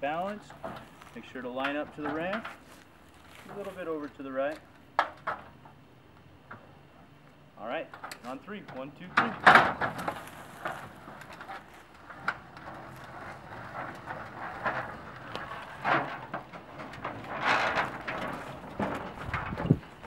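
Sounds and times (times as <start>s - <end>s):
dolly wheels rumbling on metal ramp: 0.0s - 5.6s, 8.8s - 20.0s
knocks and clanks: 0.3s - 1.0s, 5.0s - 5.6s, 7.9s - 20.0s
footsteps on metal ramp: 9.3s - 20.0s.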